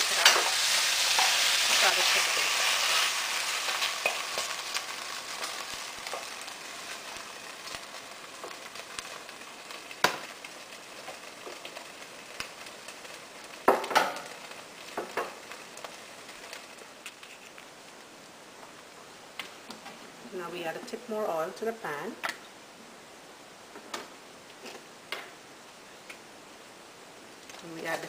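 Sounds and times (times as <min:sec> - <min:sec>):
wooden spoon scraping a pan: 0:00.0 - 0:07.8
meat sizzling in a pan: 0:00.0 - 0:18.0.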